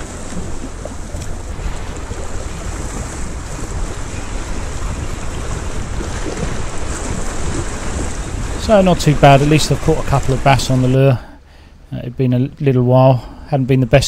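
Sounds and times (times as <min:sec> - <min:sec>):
waves lapping over rocks: 0:00.0 - 0:11.2
wind buffeting microphone: 0:00.0 - 0:11.2.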